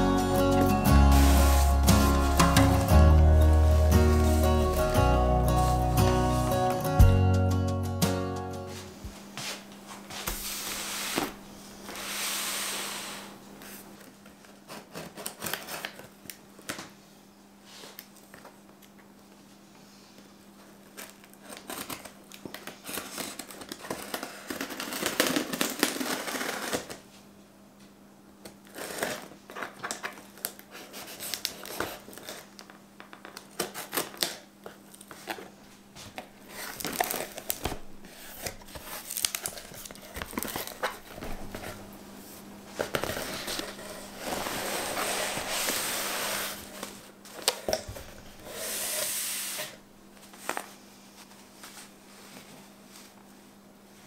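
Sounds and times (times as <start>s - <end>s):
packing tape tearing: 0.5s - 6.4s, 14.7s - 16.4s, 20.9s - 27.0s, 28.6s - 35.5s, 36.5s - 41.8s
cardboard flaps scraping: 1.0s - 5.0s, 9.5s - 13.9s, 36.1s - 50.6s.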